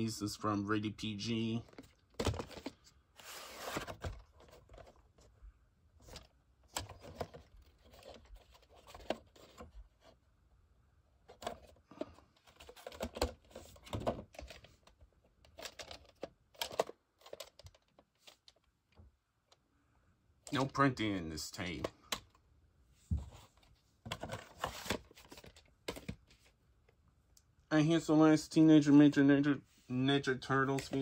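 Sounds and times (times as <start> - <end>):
handling plastic cassette and cardboard: 1.6 - 5.3, 6.0 - 10.2, 11.3 - 18.8, 23.6 - 26.5, 30.7 - 31.0.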